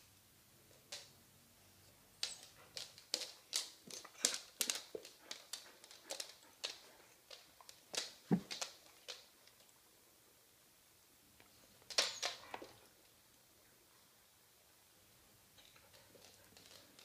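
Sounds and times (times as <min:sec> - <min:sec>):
dog claws clicking on hard floor: 0:00.8 - 0:01.1, 0:02.2 - 0:09.7, 0:11.4 - 0:13.2, 0:15.6 - 0:17.0.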